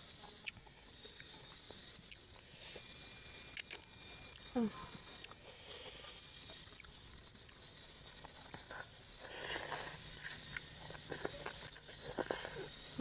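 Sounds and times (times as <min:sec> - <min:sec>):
noodles slurped: 0:08.5 - 0:12.7.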